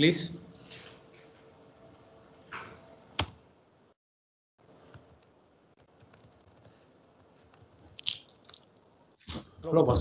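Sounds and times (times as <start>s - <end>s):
faint keyboard keystrokes: 4.9s - 8.6s.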